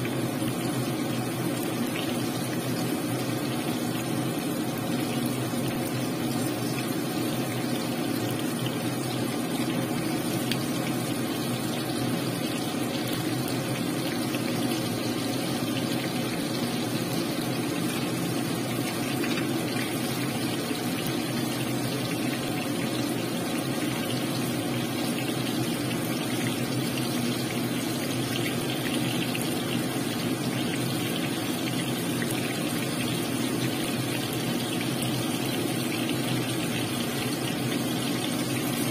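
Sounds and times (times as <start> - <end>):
chicken deep-frying in oil: 0.0 - 38.9.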